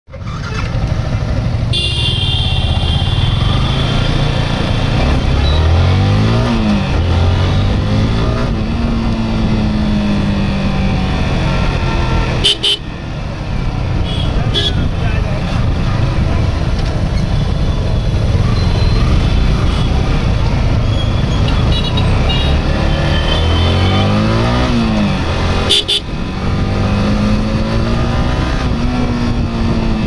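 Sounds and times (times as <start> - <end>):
motorcycle engine accelerating: 0.1 - 30.0
vehicle horns honking: 1.7 - 4.2, 12.3 - 12.9, 14.0 - 15.0, 21.0 - 24.1, 25.6 - 26.1.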